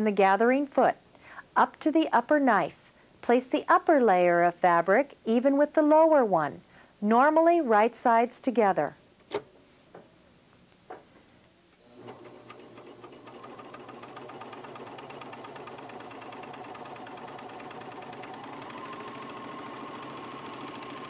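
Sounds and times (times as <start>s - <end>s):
serger sewing machine running: 11.8s - 21.0s.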